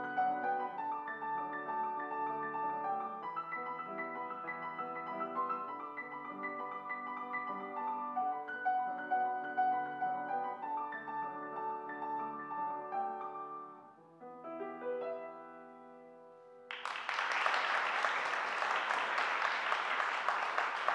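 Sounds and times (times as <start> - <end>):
solo grand piano: 0.0 - 16.8
audience applause: 16.7 - 20.9.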